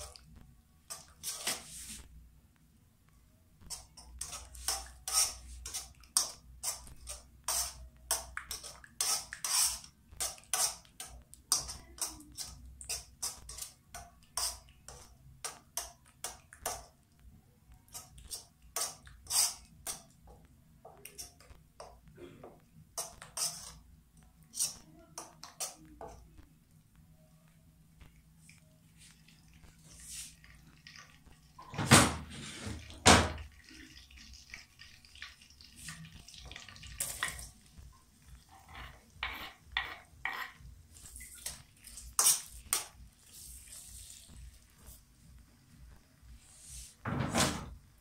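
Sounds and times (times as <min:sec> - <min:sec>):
metal spoon scraping a steel wok: 0:03.7 - 0:13.8, 0:17.9 - 0:20.0, 0:23.0 - 0:23.8, 0:24.5 - 0:24.8, 0:38.5 - 0:40.6.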